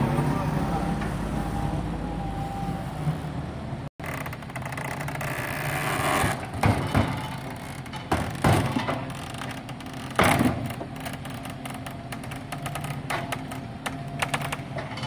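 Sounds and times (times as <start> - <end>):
engine running: 0.0 - 15.0
sharp knocks or clanks: 6.3 - 15.0.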